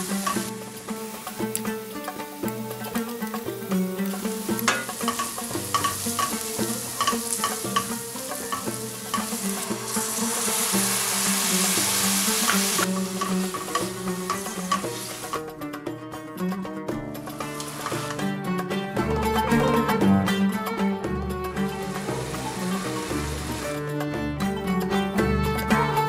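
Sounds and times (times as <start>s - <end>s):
onions sizzling in a pan: 0.0s - 15.5s, 17.2s - 18.4s, 21.5s - 23.8s
background music with plucked strings: 0.0s - 26.0s
wooden spoon stirring: 4.7s - 15.4s, 17.3s - 18.2s.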